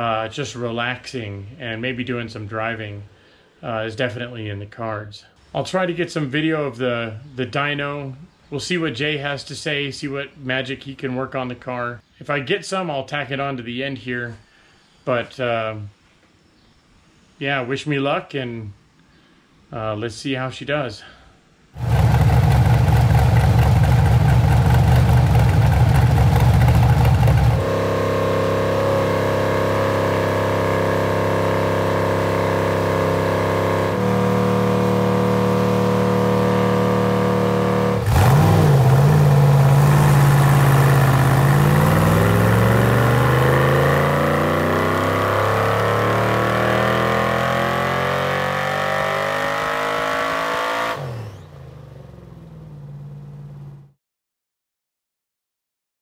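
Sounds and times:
car engine revving on dynamometer: 21.8 - 51.5.

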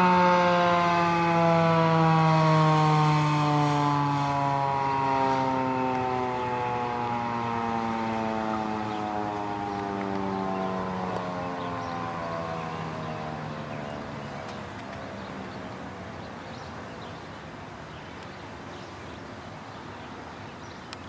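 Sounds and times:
warning siren winding down: 0.0 - 16.1
outdoor background hiss: 0.0 - 21.0.

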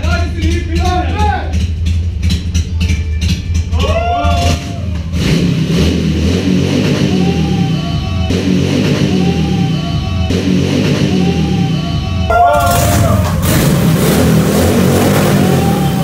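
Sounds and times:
motorcycle engine running: 0.0 - 16.0
music playing: 7.1 - 16.0.

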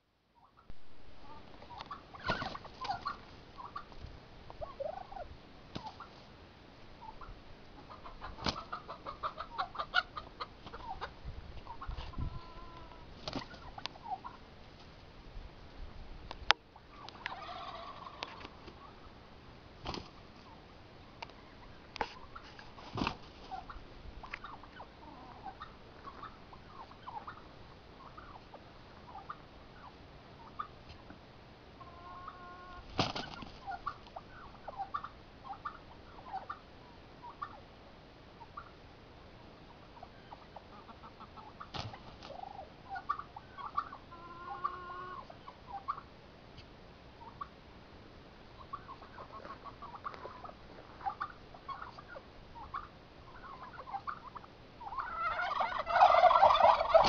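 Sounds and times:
quick clear poultry calls: 0.4 - 4.0, 4.6 - 6.3, 7.0 - 14.5, 16.8 - 19.1, 19.8 - 30.9, 31.8 - 37.7, 38.4 - 38.8, 39.6 - 46.1, 48.6 - 57.0
chickens and turkey clucking: 0.4 - 15.0, 15.7 - 47.6, 48.5 - 57.0.

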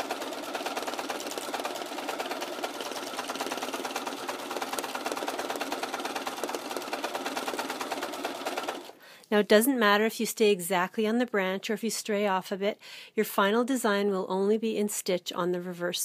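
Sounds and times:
sewing machine stitching: 0.0 - 9.0.

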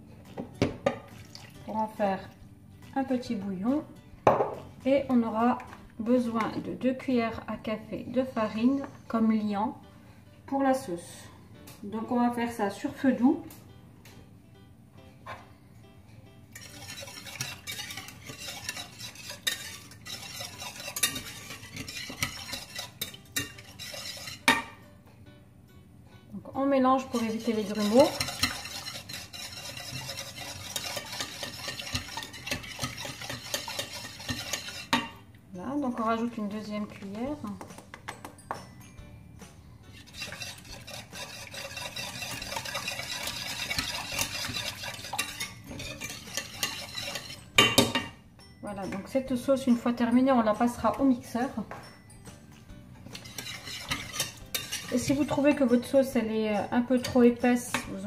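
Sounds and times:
whisk scraping metal saucepan: 16.5 - 24.8, 26.9 - 35.2, 39.8 - 48.1, 53.0 - 58.0
whisk tapping pan sides: 16.5 - 24.8, 26.9 - 35.2, 39.4 - 48.2, 53.0 - 58.0.

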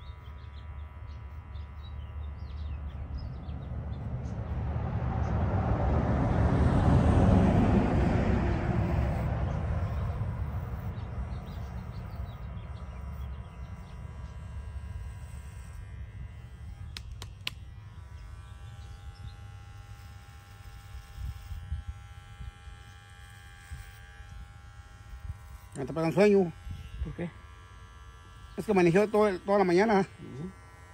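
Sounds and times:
electric hair clipper buzzing: 0.0 - 30.9
vehicle passing: 2.5 - 14.9
sharp clicks: 16.9 - 17.7.

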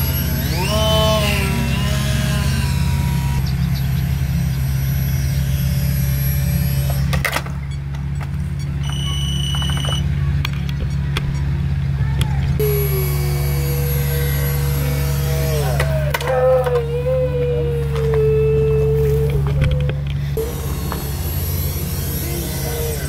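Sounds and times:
small electric motor whining: 0.0 - 7.3, 12.6 - 23.0
steady low hum: 0.0 - 23.0
high beeps: 8.6 - 10.1.

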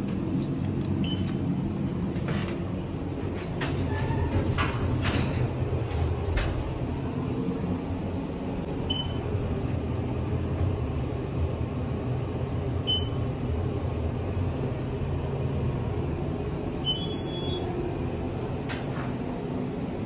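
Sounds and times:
elevator hum: 0.0 - 20.0.

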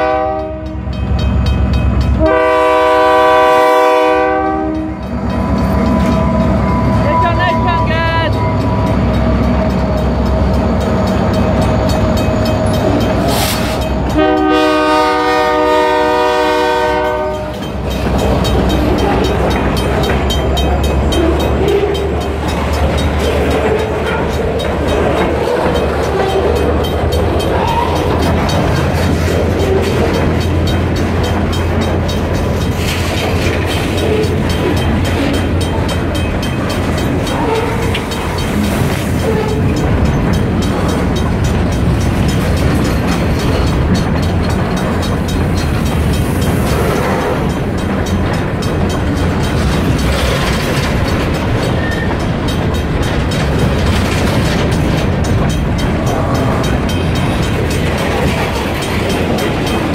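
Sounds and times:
diesel locomotive horn: 0.0 - 1.0, 2.2 - 5.6, 13.3 - 17.7, 37.3 - 38.1
freight train wheels clattering: 0.0 - 59.9.

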